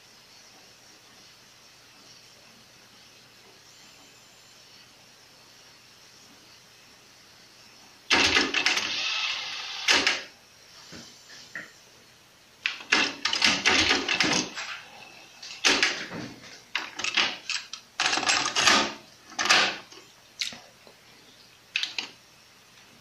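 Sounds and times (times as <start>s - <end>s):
cassette door opening and shutting: 12.7s - 14.8s, 15.6s - 19.9s.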